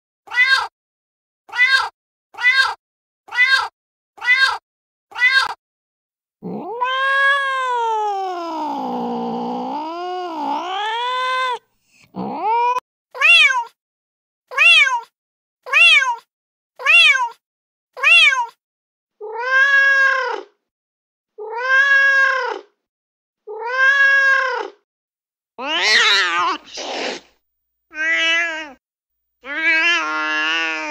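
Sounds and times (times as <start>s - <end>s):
cat meowing: 0.3s - 0.7s, 1.5s - 5.6s, 6.4s - 11.6s, 12.2s - 13.8s, 14.5s - 15.1s, 15.7s - 17.4s, 18.0s - 18.6s, 19.2s - 20.6s, 21.4s - 22.7s, 23.4s - 24.8s, 25.6s - 27.2s, 27.9s - 28.8s, 29.4s - 30.9s.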